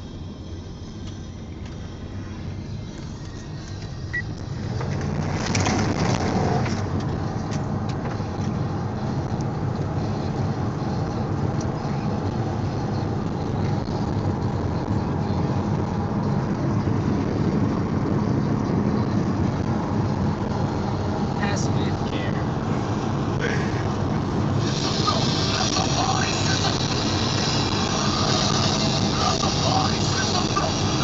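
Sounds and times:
car engine running hard: 0.0s - 31.0s
road and wind noise: 0.0s - 31.0s.

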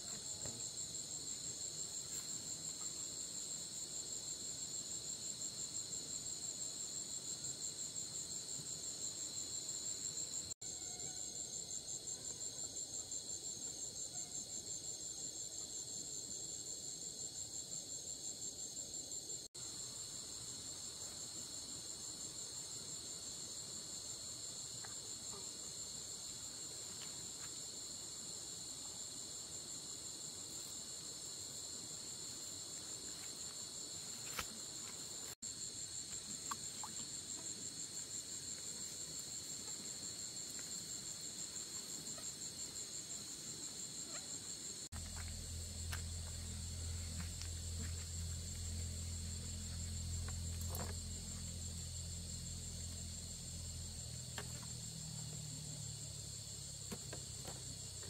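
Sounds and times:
crickets chirring: 0.0s - 58.0s
faint low hum: 45.0s - 56.6s.

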